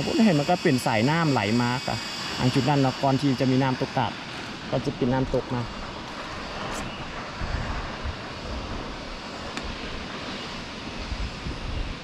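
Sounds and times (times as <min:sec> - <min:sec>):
wind buffeting microphone: 0:04.2 - 0:12.0.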